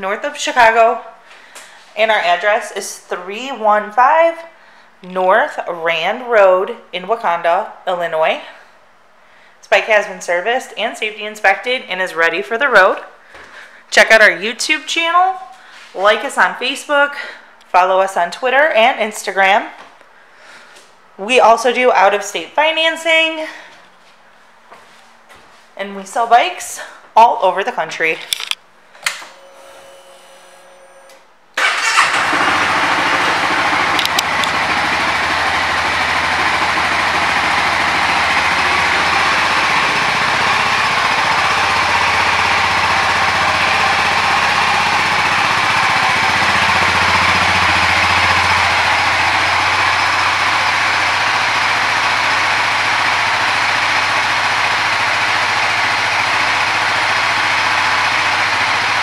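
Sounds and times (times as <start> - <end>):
motorcycle engine starting and idling: 30.6 - 59.0.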